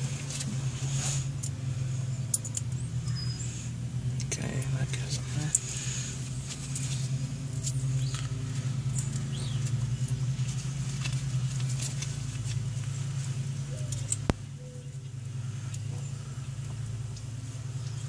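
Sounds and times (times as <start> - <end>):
steady low hum: 0.0 - 18.0
metal tools clicking and tapping: 2.2 - 3.2.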